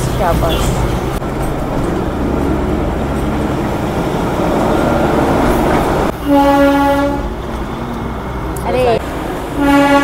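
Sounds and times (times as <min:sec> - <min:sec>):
train rumbling on track: 0:00.0 - 0:10.0
train horn blast: 0:06.1 - 0:07.4, 0:09.5 - 0:10.0.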